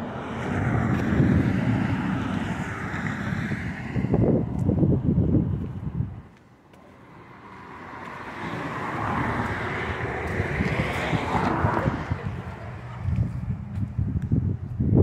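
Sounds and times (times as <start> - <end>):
vehicle passing by: 0.0 - 6.1, 6.8 - 15.0
wind buffeting microphone: 0.0 - 6.4, 7.6 - 15.0.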